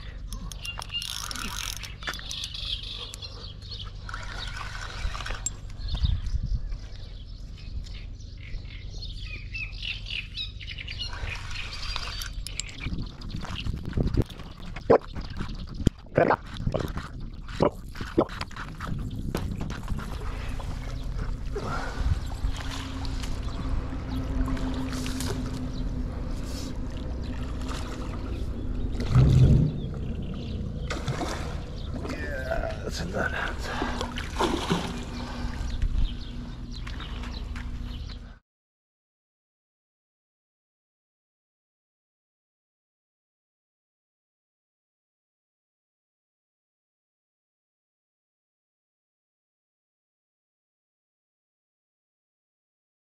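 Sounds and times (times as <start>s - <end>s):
birds squawking and chirping: 0.0s - 38.4s
steady low hum: 0.0s - 38.4s
steady low rumble: 5.2s - 38.4s
fish splashing at surface: 30.8s - 32.1s, 33.7s - 35.7s.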